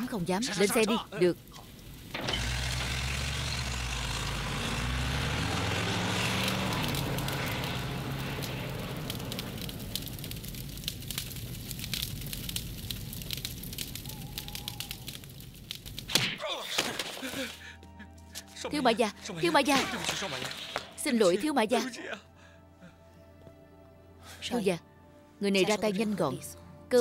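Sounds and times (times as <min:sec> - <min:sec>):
fire crackling and popping: 0:00.0 - 0:18.6, 0:19.3 - 0:21.2
truck engine pulling away: 0:01.8 - 0:13.9.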